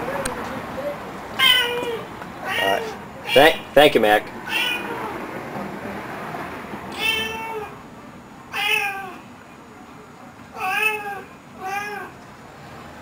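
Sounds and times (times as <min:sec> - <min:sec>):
cat meowing: 0:01.4 - 0:03.6, 0:04.5 - 0:05.2, 0:06.9 - 0:07.8, 0:08.5 - 0:09.2, 0:10.6 - 0:12.2.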